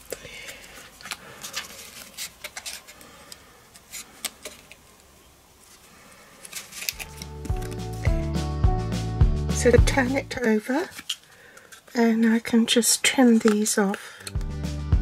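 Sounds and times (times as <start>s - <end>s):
cardstock crackling and tapping: 10.4s - 14.4s.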